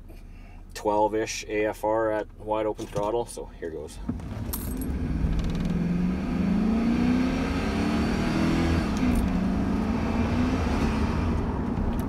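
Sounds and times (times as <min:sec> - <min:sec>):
truck engine at full throttle: 0:04.2 - 0:12.0.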